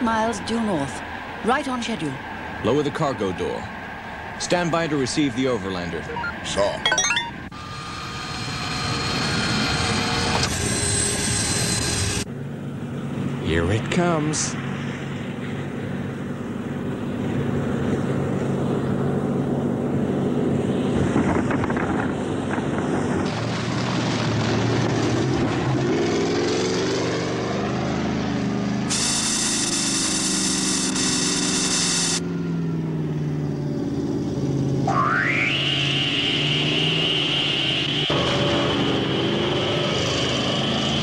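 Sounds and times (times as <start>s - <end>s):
vehicle rumbling: 0.0s - 41.0s
rising electronic tone: 6.2s - 7.8s, 34.7s - 40.7s
high electronic whine: 28.9s - 32.2s, 34.8s - 40.7s.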